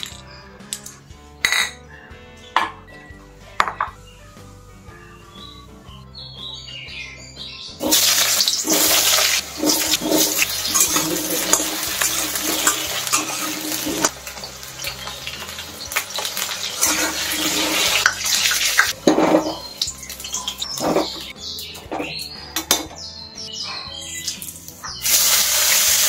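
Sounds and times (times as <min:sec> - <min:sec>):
metal spatula scraping pan: 0:07.8 - 0:14.1
potatoes sizzling in hot oil: 0:07.8 - 0:21.3, 0:24.6 - 0:26.0.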